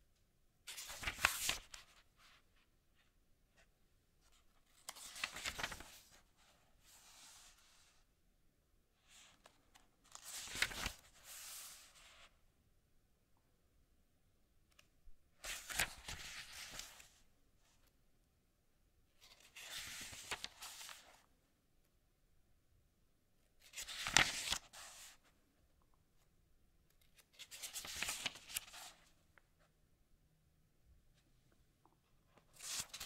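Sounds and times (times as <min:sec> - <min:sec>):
book pages turning: 0:00.7 - 0:02.0, 0:04.6 - 0:06.2, 0:09.4 - 0:12.3, 0:15.4 - 0:17.1, 0:19.2 - 0:21.2, 0:23.6 - 0:25.2, 0:27.0 - 0:29.1, 0:31.8 - 0:33.0.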